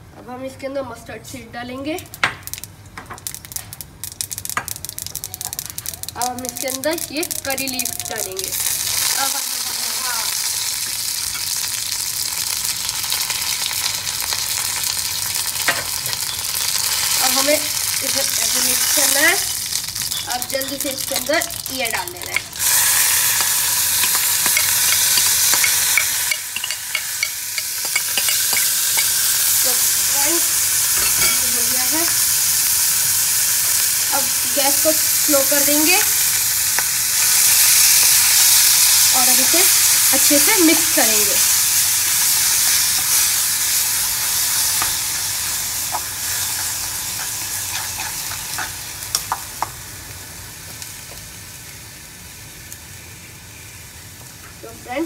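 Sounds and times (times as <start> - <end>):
spices sizzling in hot oil: 1.8 - 55.0
metal spoon scraping a pan: 20.1 - 20.4, 21.1 - 29.2, 45.9 - 48.8.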